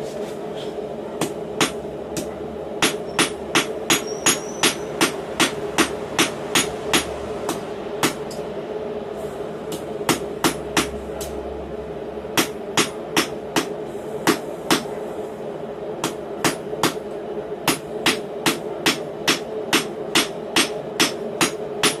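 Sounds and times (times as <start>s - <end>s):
steady hum: 0.0s - 22.0s
hammer striking steel on anvil: 1.2s - 8.4s, 12.4s - 14.9s, 16.0s - 17.0s, 17.6s - 22.0s.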